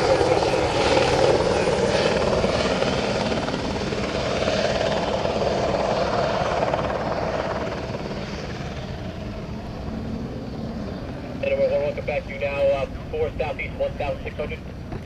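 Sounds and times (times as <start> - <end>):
helicopter flying past: 0.0 - 15.0.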